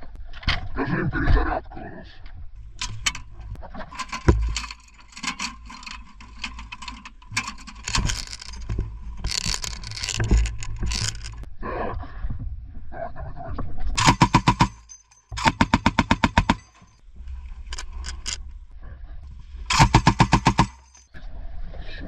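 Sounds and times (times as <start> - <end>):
metallic clanking of gun parts: 2.6 - 11.5, 14.0 - 18.6, 19.7 - 21.2.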